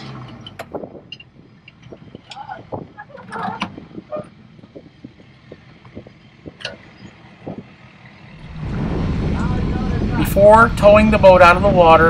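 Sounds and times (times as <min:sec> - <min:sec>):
loud steady rushing noise: 0:03.8 - 0:12.0.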